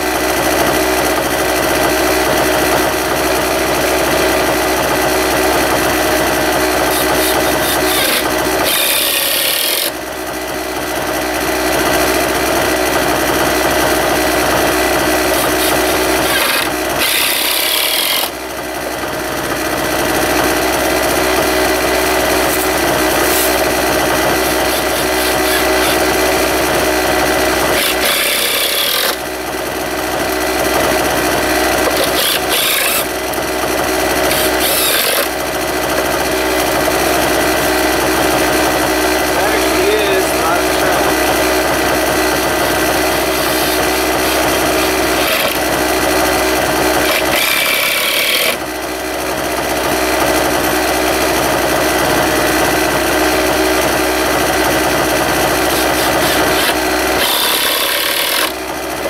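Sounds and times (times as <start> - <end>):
steady engine-like hum: 0.0 - 59.0
cordless drill driving screws: 6.8 - 10.0, 15.3 - 18.4, 22.5 - 26.5, 27.5 - 29.2, 31.6 - 35.4, 43.0 - 46.3, 46.9 - 48.7, 55.7 - 59.0.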